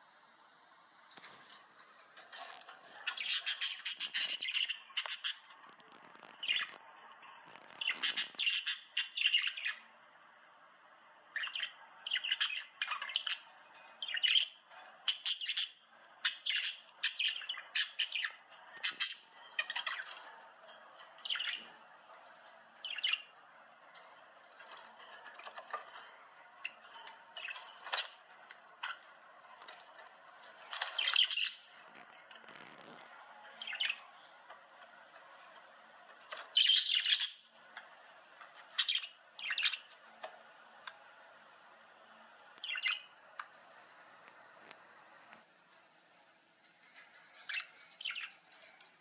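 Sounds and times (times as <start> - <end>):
bird chirping and squawking: 2.3 - 9.9, 11.3 - 23.4, 24.0 - 29.8, 30.5 - 34.2, 36.3 - 37.5, 38.6 - 40.0, 42.6 - 43.1, 47.3 - 48.6.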